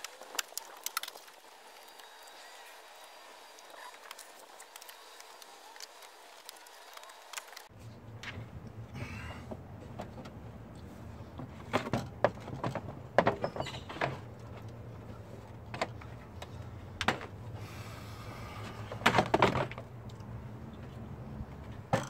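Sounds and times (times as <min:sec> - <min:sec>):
plastic knocks and clatters: 0:11.4 - 0:14.3, 0:18.9 - 0:19.8.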